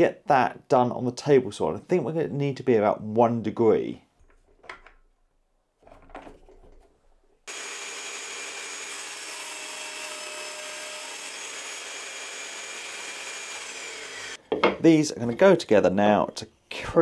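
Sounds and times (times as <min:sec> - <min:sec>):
table saw cutting wood: 0:07.5 - 0:14.4.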